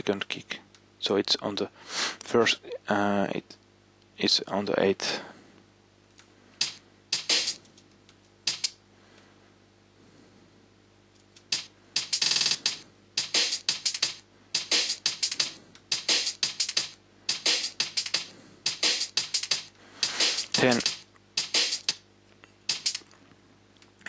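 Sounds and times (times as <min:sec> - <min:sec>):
breakbeat kick and snare hits: 0:06.6 - 0:07.6, 0:08.5 - 0:08.8, 0:11.5 - 0:22.0, 0:22.7 - 0:23.0.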